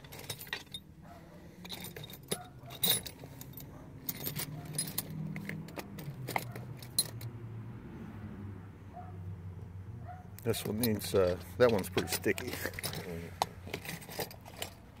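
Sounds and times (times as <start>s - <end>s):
metal tools clinking: 0.0s - 7.3s, 10.4s - 15.0s.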